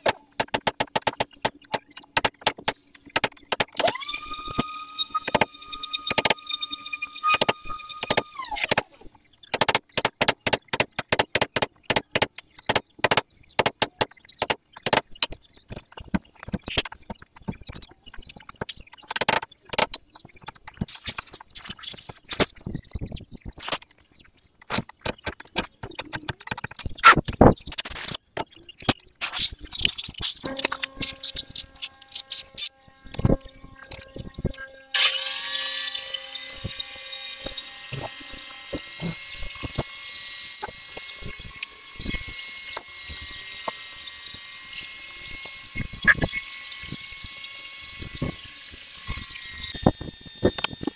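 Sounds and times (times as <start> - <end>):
sharp clicks and knocks on timber: 0.0 - 4.0, 9.5 - 21.4
high-pitched machine whine: 0.0 - 10.0, 30.4 - 50.9.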